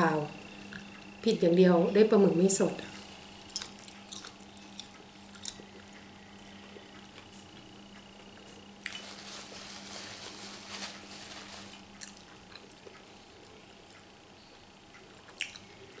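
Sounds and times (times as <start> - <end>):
person chewing: 3.4 - 7.7, 8.3 - 9.2, 11.7 - 14.0, 14.9 - 16.0
rustling: 8.8 - 12.2.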